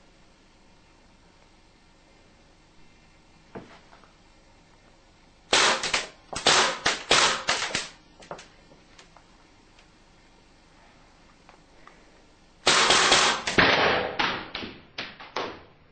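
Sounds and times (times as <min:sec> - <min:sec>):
airgun shots: 0:05.5 - 0:07.9, 0:12.6 - 0:14.5.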